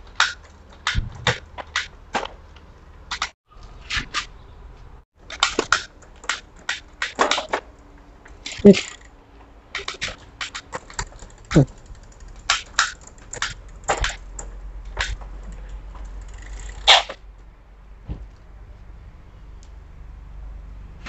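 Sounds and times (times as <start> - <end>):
bicycle derailleur and chain clicking: 5.2 - 17.2.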